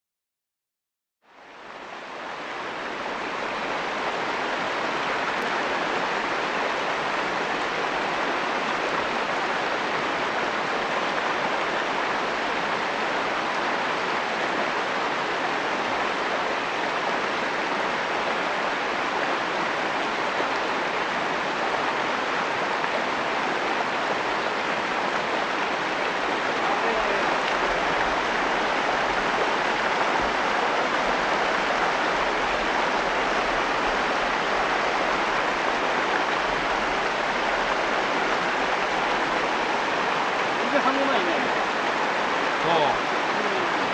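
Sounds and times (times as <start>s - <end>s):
stream rushing over rocks: 1.3s - 43.9s.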